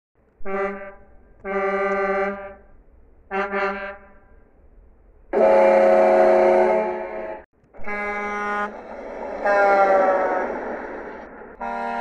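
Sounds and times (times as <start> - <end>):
multi-tone horn: 0.4 - 2.7, 3.3 - 4.3, 5.3 - 10.5, 11.6 - 12.0
truck horn honking: 0.4 - 2.7, 3.3 - 4.4, 5.3 - 10.6, 11.6 - 12.0.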